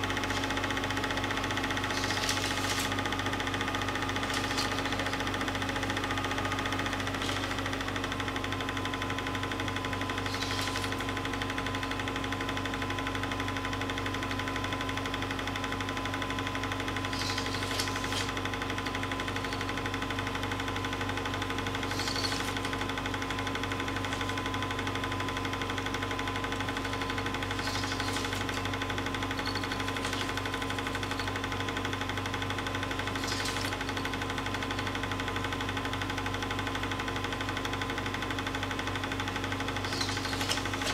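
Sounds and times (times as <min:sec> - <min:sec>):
film projector running: 0:00.0 - 0:40.9.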